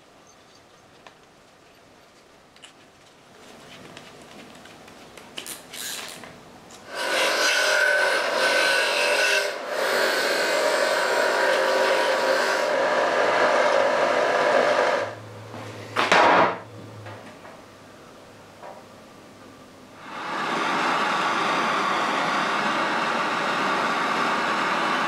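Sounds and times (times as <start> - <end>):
grinder motor humming: 6.9 - 15.2, 20.0 - 25.0
wire wheel scraping metal: 6.9 - 15.2.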